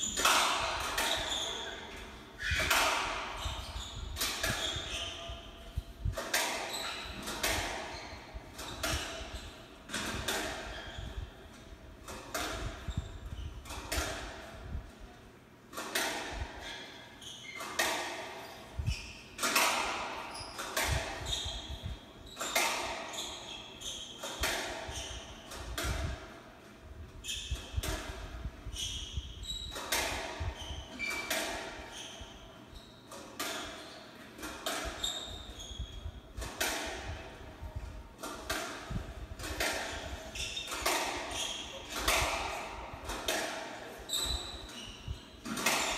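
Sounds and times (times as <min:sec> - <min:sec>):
shoes squeaking on wooden floor: 0:01.0 - 0:10.0, 0:10.6 - 0:11.4, 0:16.6 - 0:24.3, 0:34.9 - 0:36.0, 0:39.9 - 0:42.6, 0:43.8 - 0:45.9
squash ball hits: 0:38.2 - 0:44.5.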